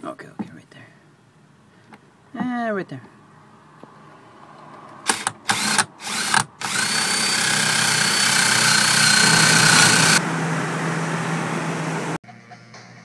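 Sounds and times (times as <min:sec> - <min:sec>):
drill boring through metal: 0:05.1 - 0:10.2.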